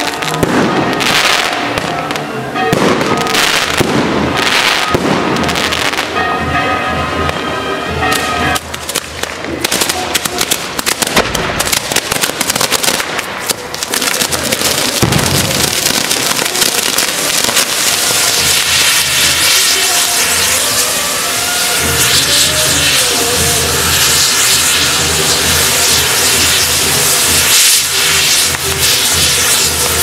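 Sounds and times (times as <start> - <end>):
firecrackers cracking: 0.0 - 30.0
deep firework bang: 8.2 - 30.0.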